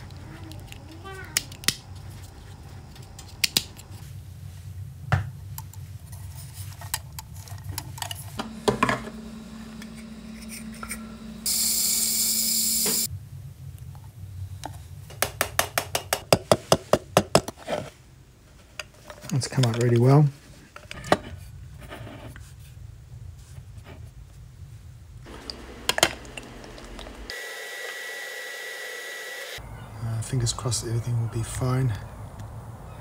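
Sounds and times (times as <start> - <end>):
low hum: 0.0 - 15.1, 24.9 - 27.3.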